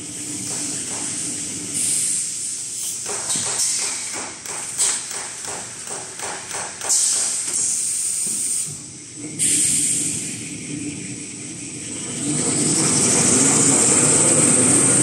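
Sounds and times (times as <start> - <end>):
loud bursts of hissing air: 0.0 - 11.0.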